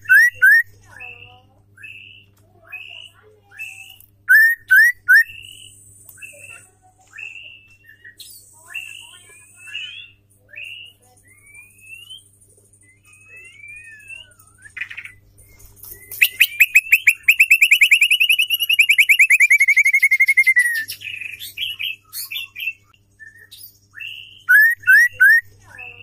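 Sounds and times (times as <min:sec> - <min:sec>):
bird trilling: 0:00.0 - 0:00.7, 0:02.8 - 0:05.7, 0:16.0 - 0:22.8, 0:24.0 - 0:25.5.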